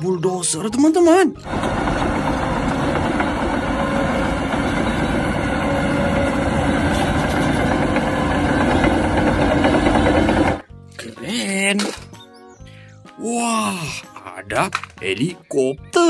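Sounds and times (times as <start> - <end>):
bulldozer diesel engine droning: 1.4 - 10.7.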